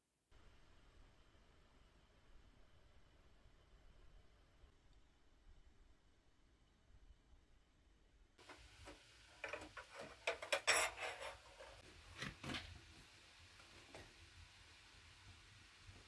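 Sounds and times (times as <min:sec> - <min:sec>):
tea glass and tray clinking: 0:09.4 - 0:11.8.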